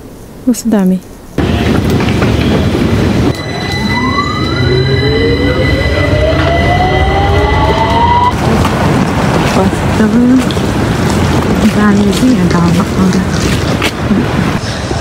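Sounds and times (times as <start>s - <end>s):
train motors whining: 1.4s - 8.8s
rushing noise: 1.4s - 15.0s.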